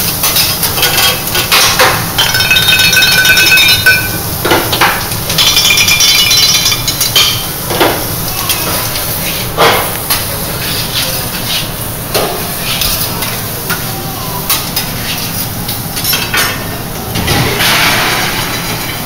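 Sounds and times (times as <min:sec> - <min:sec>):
prawns sizzling on a griddle: 0:00.0 - 0:02.7, 0:03.6 - 0:16.4
metal utensils scraping a griddle: 0:10.1 - 0:11.8, 0:14.5 - 0:16.3.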